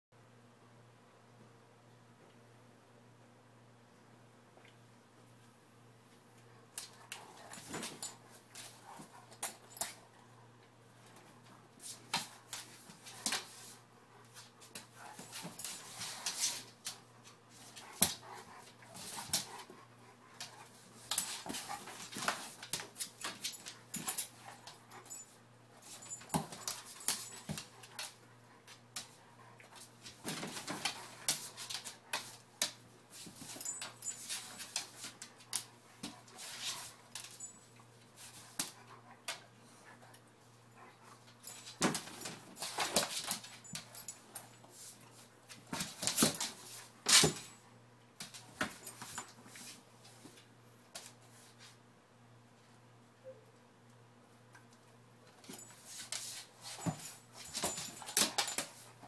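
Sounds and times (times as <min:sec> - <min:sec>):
dogs scuffling on wooden floor: 0:06.8 - 0:10.2, 0:11.0 - 0:40.1, 0:40.9 - 0:47.6, 0:48.2 - 0:51.8, 0:55.4 - 0:59.0.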